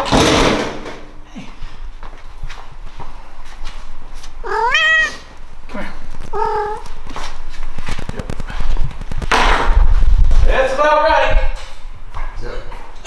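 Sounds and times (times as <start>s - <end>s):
cat meowing: 4.4s - 5.3s, 6.3s - 7.0s.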